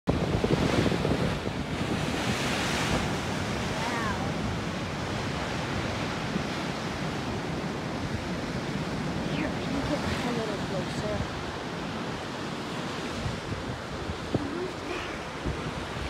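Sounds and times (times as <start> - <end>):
ocean surf washing over rocks: 0.1 - 16.0
wind buffeting microphone: 0.1 - 16.0.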